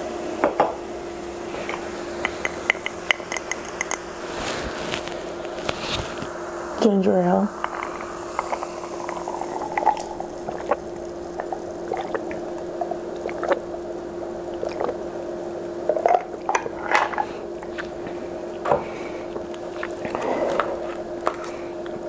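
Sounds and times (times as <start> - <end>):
steady hum: 0.0 - 22.0
fizzy drink sipped and swallowed: 7.5 - 13.8, 14.5 - 15.1, 18.8 - 22.0
wet mouth clicks: 7.6 - 13.8, 14.5 - 15.0, 19.3 - 22.0.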